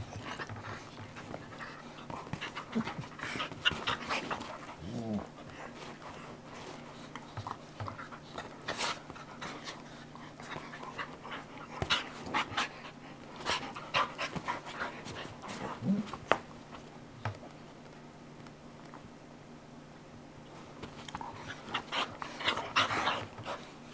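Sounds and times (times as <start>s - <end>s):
dogs panting and huffing: 0.0s - 17.4s, 20.6s - 23.9s
dog low rising vocal sound: 4.7s - 5.7s.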